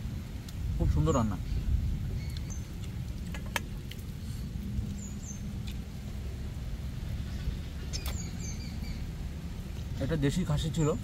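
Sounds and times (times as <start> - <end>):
storm wind and rain: 0.0 - 11.0
wet chewing and lip-smacking: 2.2 - 5.9.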